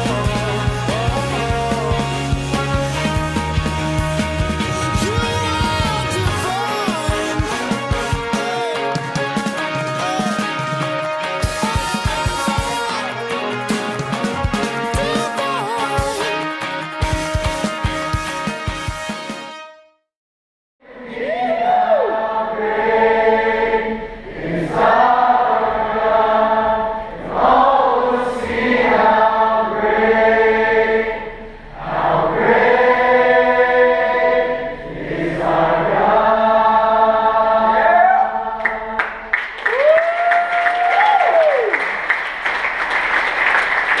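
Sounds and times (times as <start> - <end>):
crowd clapping and cheering: 3.5 - 17.3, 38.6 - 44.0
person whooping: 10.0 - 10.5, 11.5 - 13.2, 15.0 - 16.4, 37.9 - 38.4, 39.7 - 41.8
congregation singing: 20.8 - 39.3.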